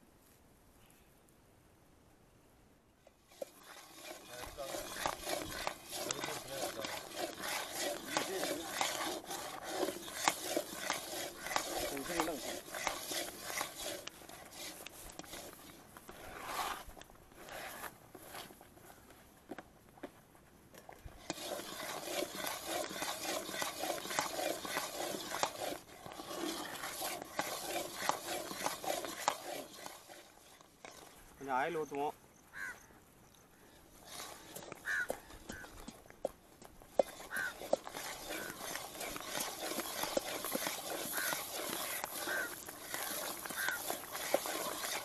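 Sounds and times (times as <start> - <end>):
thick batter churning: 3.2 - 18.5, 21.0 - 32.0, 34.0 - 45.0
metal spatula scraping pan: 3.3 - 16.8, 21.2 - 31.2, 37.0 - 45.0
small crackles and ticks: 10.1 - 16.2, 22.4 - 32.1, 33.2 - 45.0.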